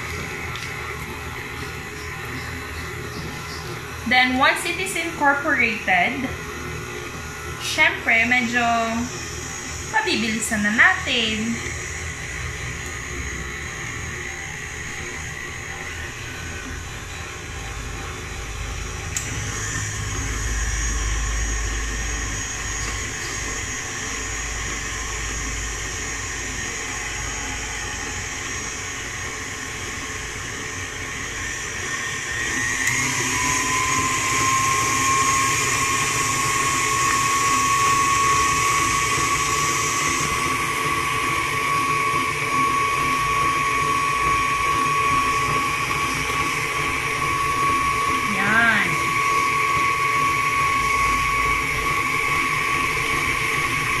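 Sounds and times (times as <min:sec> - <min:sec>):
stand mixer motor whine: 0:00.0 - 0:54.0.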